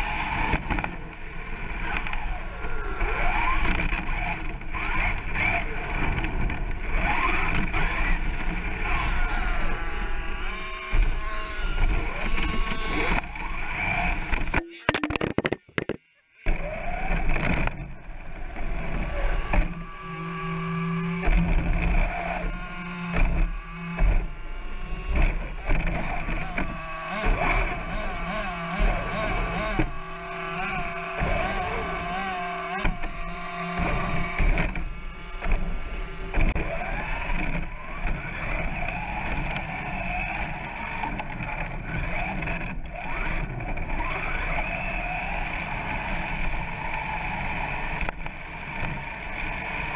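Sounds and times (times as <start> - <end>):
electric motor whining: 1.7 - 15.9, 16.5 - 48.2
chassis rumbling on tarmac: 11.8 - 49.9.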